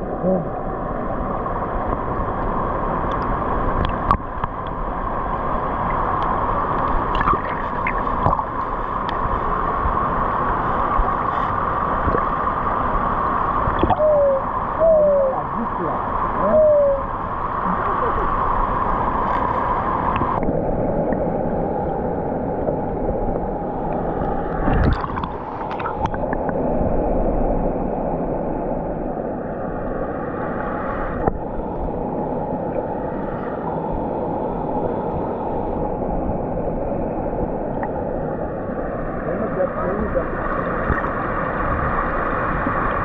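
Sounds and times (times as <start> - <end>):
muffled underwater river gurgling: 0.0 - 43.0.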